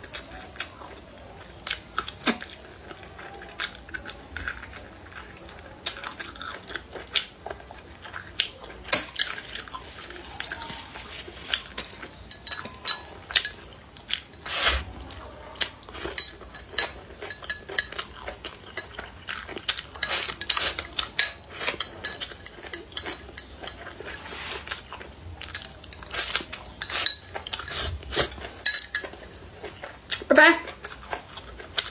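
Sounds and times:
chopsticks clinking on ceramic bowl: 0:11.5 - 0:24.0, 0:26.1 - 0:29.2.

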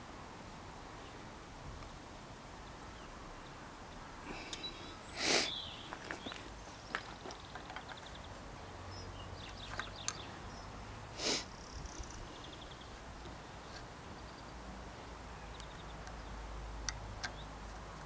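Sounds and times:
person sniffing: 0:04.2 - 0:05.6, 0:11.2 - 0:11.5.

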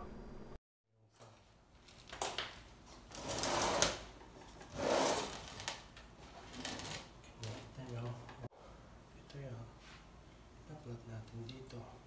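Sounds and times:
cables rustling: 0:01.1 - 0:08.5.

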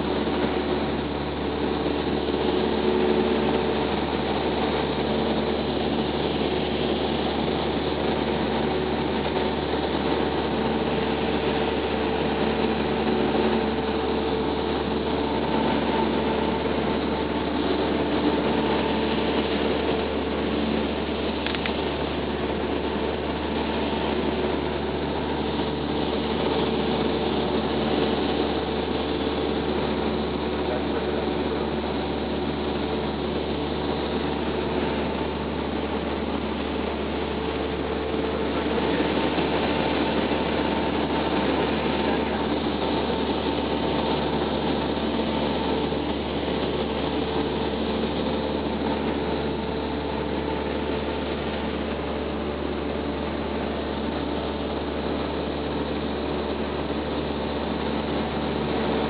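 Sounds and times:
airplane engine drone: 0:00.0 - 0:59.0.

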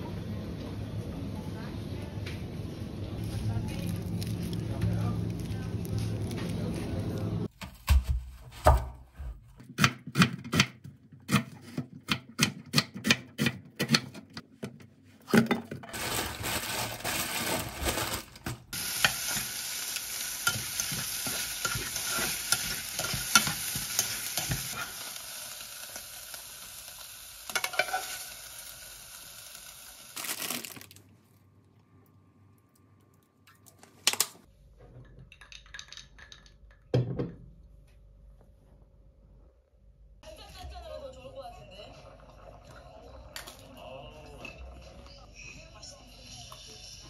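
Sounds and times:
food sizzling in a pot: 0:18.7 - 0:30.8.

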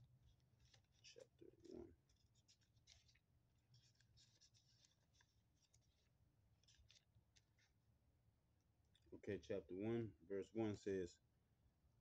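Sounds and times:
paper pages rustling: 0:00.1 - 0:07.8.

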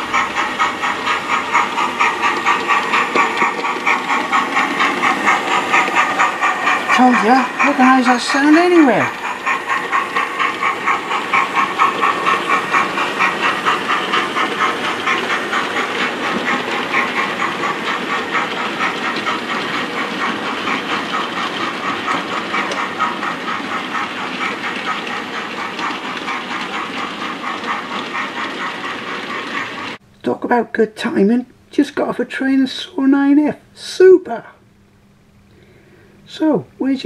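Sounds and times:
steam hissing: 0:00.0 - 0:30.0
steam locomotive chuffing: 0:00.0 - 0:34.6.

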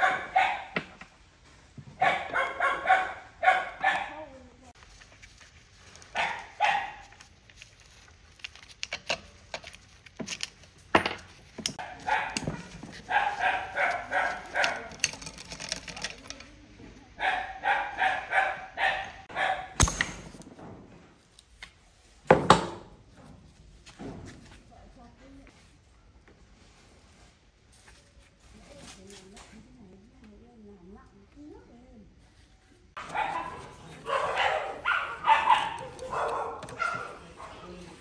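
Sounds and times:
dog barking: 0:00.0 - 0:00.9, 0:02.0 - 0:04.3, 0:06.1 - 0:07.2, 0:11.8 - 0:15.0, 0:17.2 - 0:19.8, 0:33.0 - 0:37.8.

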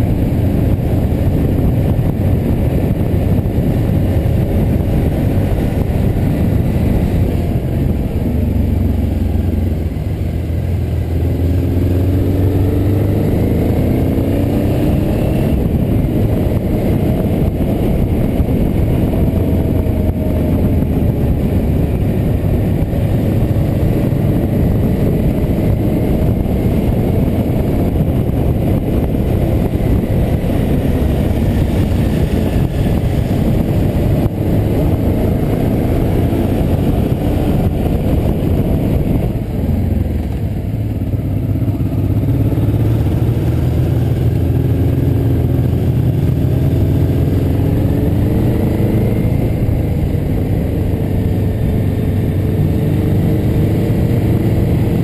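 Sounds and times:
vehicle engine and road noise: 0:00.0 - 0:55.0.

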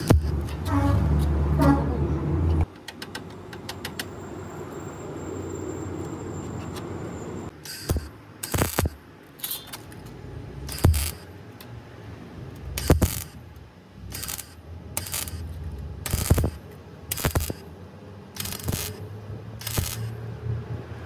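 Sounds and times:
arc welder crackling: 0:00.0 - 0:01.3, 0:07.5 - 0:11.7, 0:12.5 - 0:17.7, 0:18.3 - 0:20.2.

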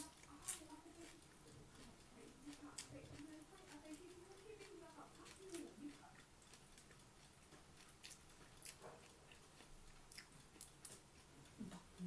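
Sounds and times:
person chewing: 0:00.0 - 0:12.0.

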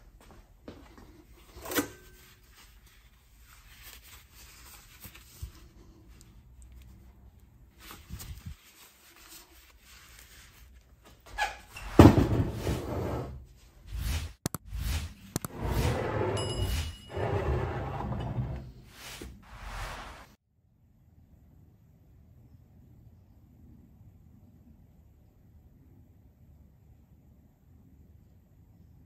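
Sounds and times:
glove rubbing and squeaking on metal: 0:07.8 - 0:12.1.

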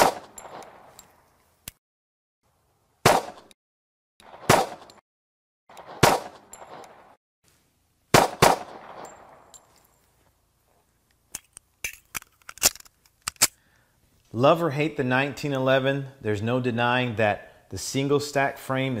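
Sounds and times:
pistol shots with echo: 0:00.0 - 0:00.9, 0:03.0 - 0:03.5, 0:04.2 - 0:04.9, 0:05.8 - 0:07.2, 0:08.1 - 0:09.6.

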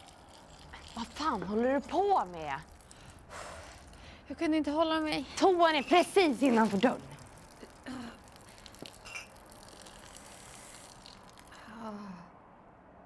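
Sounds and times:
urine hissing on ground: 0:09.7 - 0:11.5.

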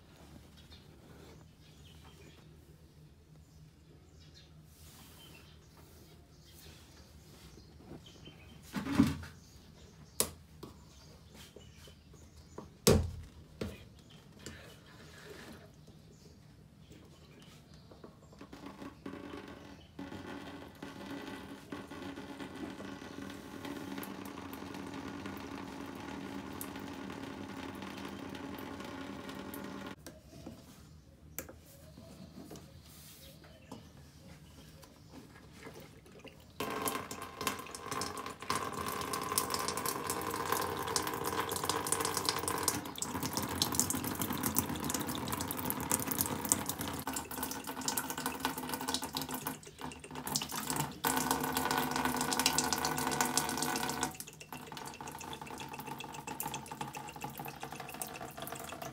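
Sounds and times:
liquid pouring into plastic bucket: 0:18.4 - 0:30.0, 0:35.5 - 0:58.9.

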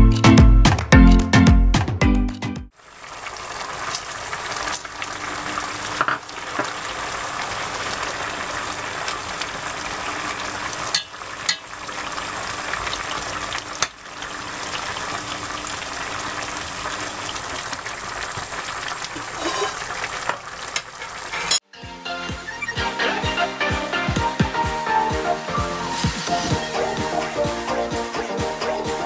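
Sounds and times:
sauce bubbling and sizzling in pot: 0:02.7 - 0:21.6, 0:25.4 - 0:27.2.

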